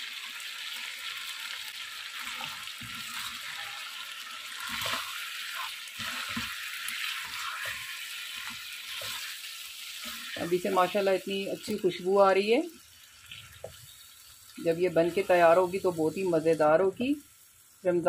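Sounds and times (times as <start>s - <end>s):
food sizzling in hot oil: 0.0s - 18.0s
spatula scraping a pan: 2.2s - 10.8s.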